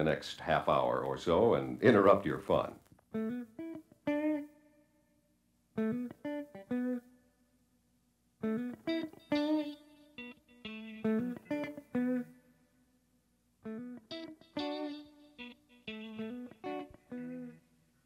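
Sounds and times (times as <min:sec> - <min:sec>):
plucked solo guitar: 0:05.8 - 0:07.0, 0:08.4 - 0:12.3, 0:13.7 - 0:17.7.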